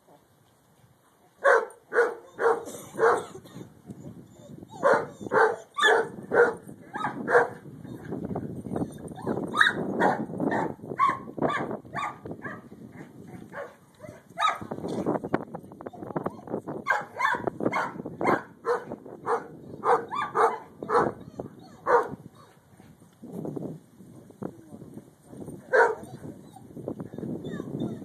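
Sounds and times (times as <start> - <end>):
dog barking: 1.4 - 3.3, 4.8 - 7.6, 9.6 - 12.6, 14.4 - 14.6, 16.9 - 21.2, 21.8 - 22.2, 25.7 - 26.0.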